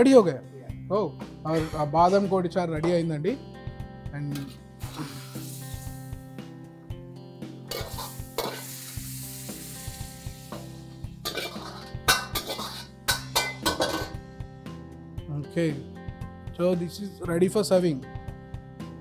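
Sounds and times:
metal ladle scraping wok: 4.4 - 5.7, 7.7 - 9.7, 10.4 - 14.2
wok sizzling: 4.4 - 6.5, 7.5 - 14.2
soup pouring: 4.8 - 6.2.

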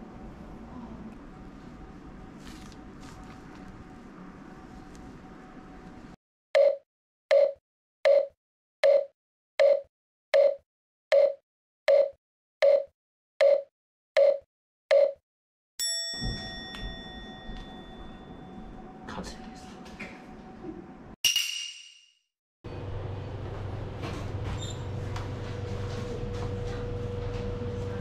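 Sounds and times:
bell ringing: 15.8 - 18.9.

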